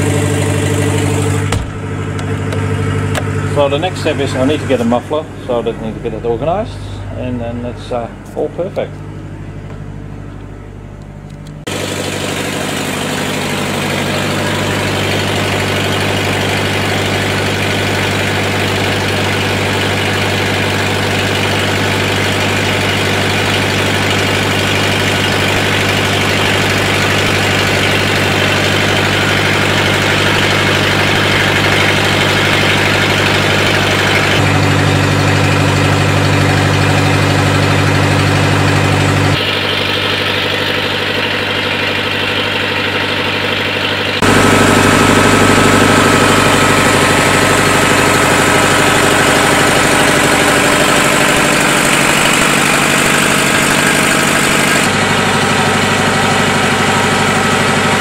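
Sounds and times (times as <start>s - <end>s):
diesel generator running: 0.0s - 58.0s.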